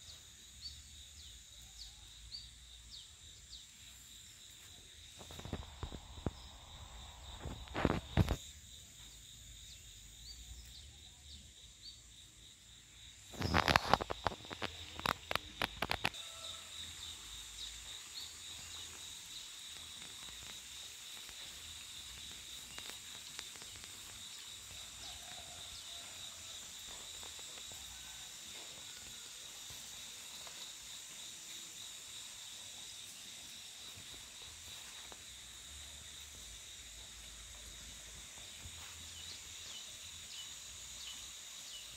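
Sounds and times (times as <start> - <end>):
insects trilling: 0.0 - 41.9
rustling through undergrowth: 13.3 - 16.2.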